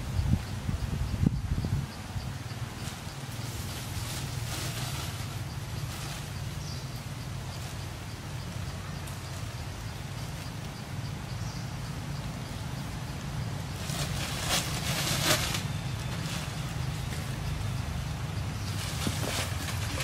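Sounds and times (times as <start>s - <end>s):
steady low hum: 0.0s - 20.0s
plastic bag rustling: 18.7s - 20.0s.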